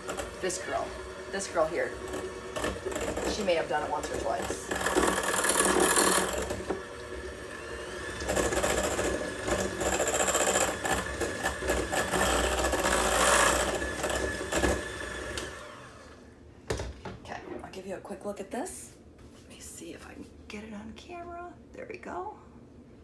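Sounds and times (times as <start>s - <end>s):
electric mixer running: 0.0s - 16.3s.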